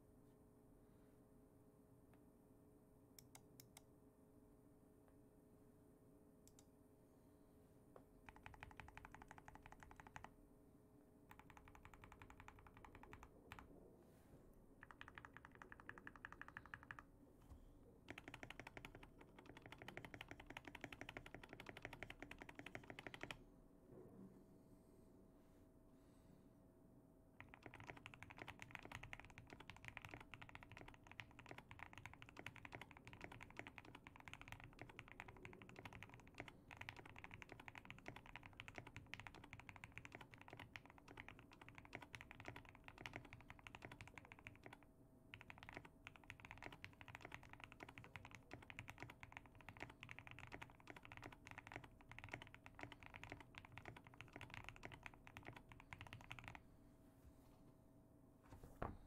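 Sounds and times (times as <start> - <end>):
fast mechanical keyboard typing: 8.3 - 10.4, 11.3 - 13.7, 14.8 - 17.1, 18.1 - 23.4, 27.4 - 56.6.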